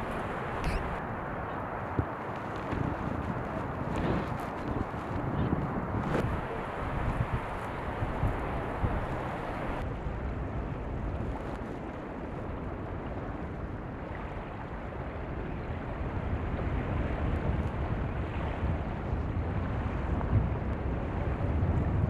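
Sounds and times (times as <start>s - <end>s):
shallow sea water washing: 0.0s - 9.8s
wind buffeting microphone: 0.0s - 22.0s.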